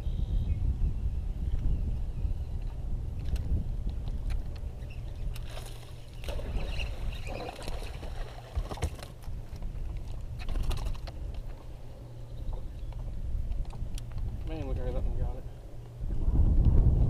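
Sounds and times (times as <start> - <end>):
wind and water rumble: 0.0 - 17.0.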